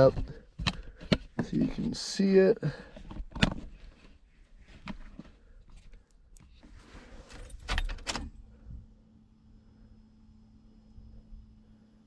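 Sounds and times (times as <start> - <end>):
car keys jangling and clicking: 7.3 - 8.3.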